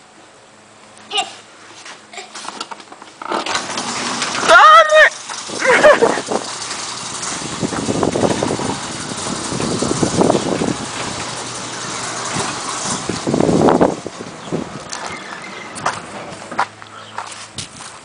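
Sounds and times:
roll-up door rolling down: 2.4 - 16.6.

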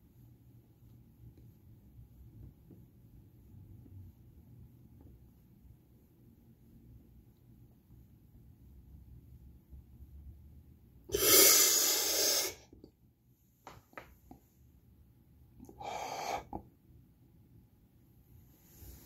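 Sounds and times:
heavy breaths: 15.7 - 16.6.

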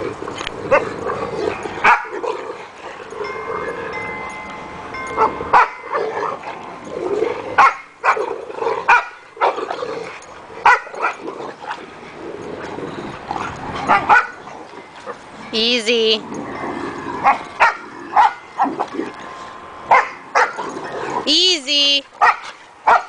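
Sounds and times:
dogs barking: 0.7 - 3.2, 5.1 - 6.6, 7.5 - 12.1, 13.3 - 15.3, 17.2 - 19.1, 19.9 - 21.2, 22.2 - 23.0.

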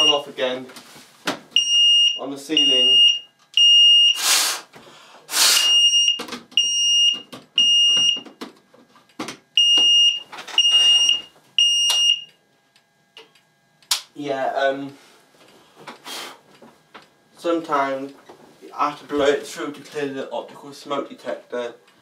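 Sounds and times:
fire alarm beeping: 0.0 - 0.3, 1.6 - 4.2, 5.6 - 8.3, 9.6 - 12.4
loud hissing rushes of noise: 4.2 - 4.7, 5.3 - 5.7.

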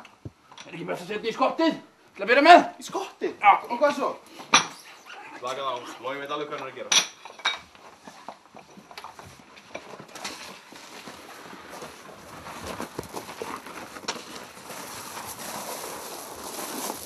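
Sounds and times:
footsteps and scuffing: 7.6 - 17.0
rustling: 7.8 - 17.0.

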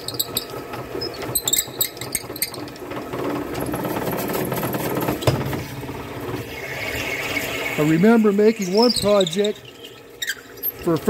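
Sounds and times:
drill bit squeaking: 0.0 - 2.8, 6.9 - 11.0
lathe running: 0.1 - 11.0.

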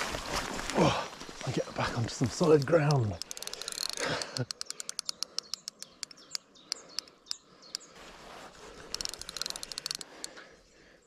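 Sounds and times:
birds chirping: 0.8 - 11.0
fishing reel clicking: 2.4 - 7.9, 8.8 - 10.4.

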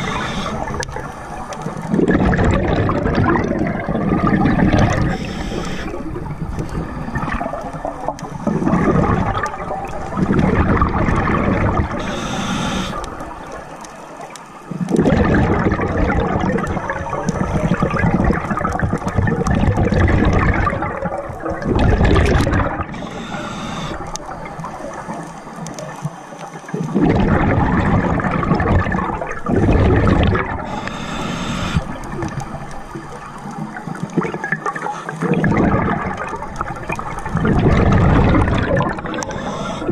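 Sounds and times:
hissing regulator inhalation: 0.0 - 2.2, 4.7 - 7.4, 12.0 - 14.9, 22.8 - 25.5, 30.6 - 32.1, 38.6 - 39.9
exhaled bubbles gurgling underwater: 0.0 - 39.9.

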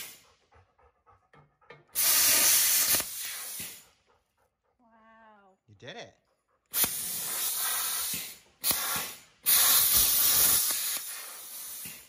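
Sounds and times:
plasma cutter hissing: 2.0 - 3.8, 6.8 - 12.0.

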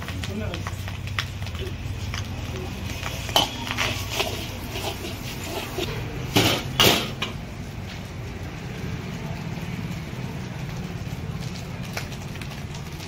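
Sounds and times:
spatula striking a wok: 3.0 - 7.4.

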